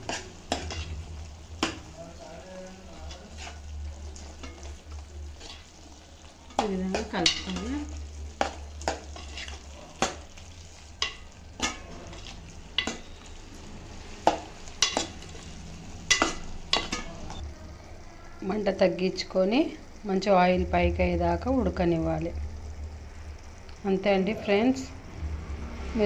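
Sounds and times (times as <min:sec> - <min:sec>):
spoon scraping metal pan: 0:00.0 - 0:01.9, 0:02.9 - 0:03.7, 0:04.4 - 0:05.8, 0:06.5 - 0:10.3, 0:10.9 - 0:13.4
steady low hum: 0:00.0 - 0:25.6
curry sizzling: 0:00.0 - 0:26.0.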